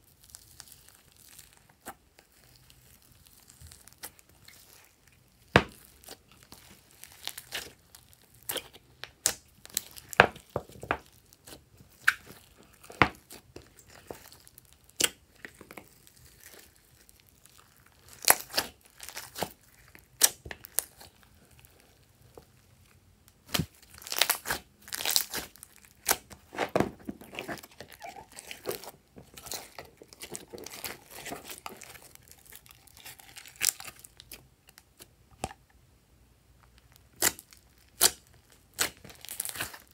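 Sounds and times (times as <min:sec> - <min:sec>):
slime squeezed by hand: 0:23.4 - 0:34.0.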